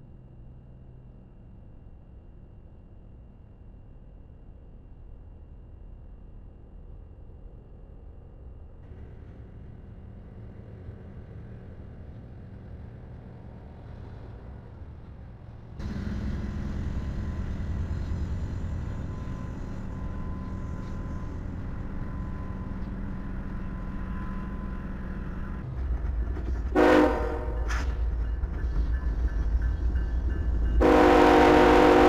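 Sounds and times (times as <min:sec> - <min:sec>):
freight train rumbling: 0:06.4 - 0:32.0
locomotive horn blast: 0:26.8 - 0:27.7, 0:30.8 - 0:32.0.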